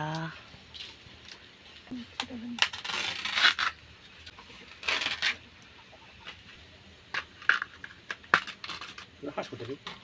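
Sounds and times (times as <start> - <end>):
husk ripping off bamboo shoot: 4.6 - 5.4.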